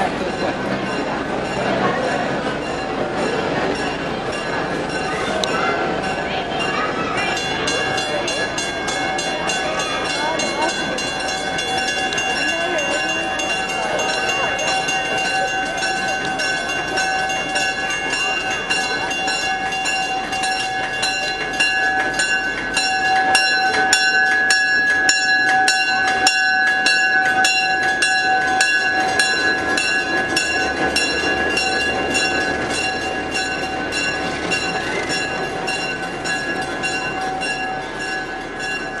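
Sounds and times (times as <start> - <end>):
diesel locomotive engine running: 0.0 - 39.0
locomotive bell ringing: 0.0 - 39.0.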